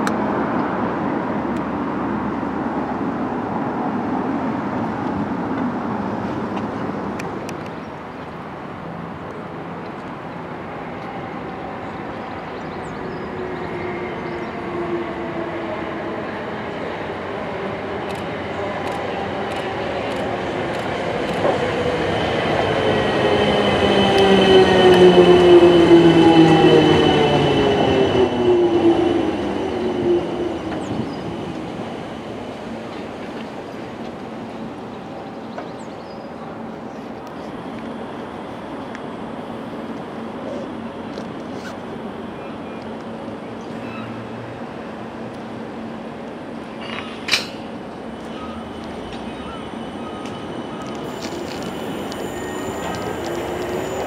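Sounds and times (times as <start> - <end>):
road traffic noise: 0.0 - 54.0
electric train humming: 10.1 - 35.6, 36.3 - 54.0.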